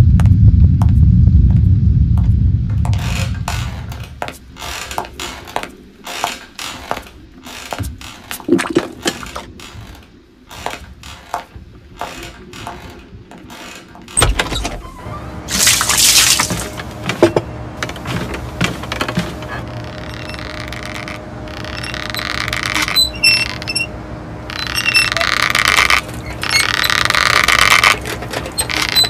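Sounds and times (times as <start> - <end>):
water pouring and splashing: 8.4 - 9.4, 15.5 - 16.8
water dripping: 8.5 - 9.3.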